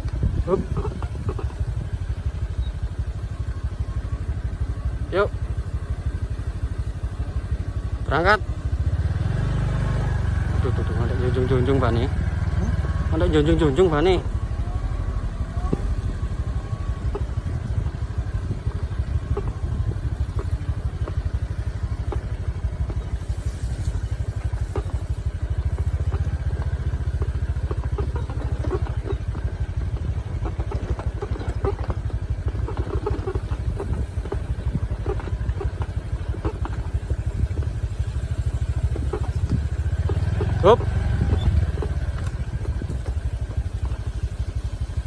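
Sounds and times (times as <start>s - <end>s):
vehicle engine running at low revs: 0.0s - 45.0s
light rattles and knocks: 15.5s - 45.0s.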